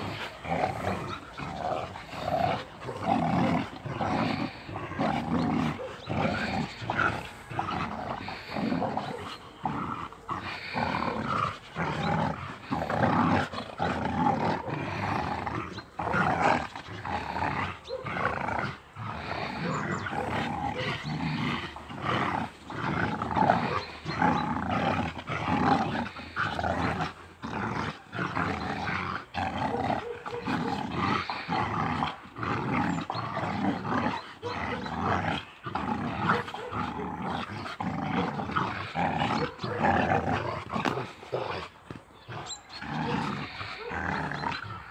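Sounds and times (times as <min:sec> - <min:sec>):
dogs growling: 0:00.0 - 0:44.9.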